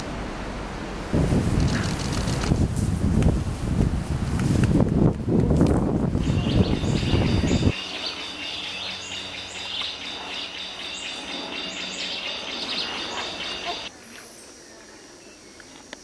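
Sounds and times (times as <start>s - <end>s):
forest chirps and trills: 6.1s - 16.0s.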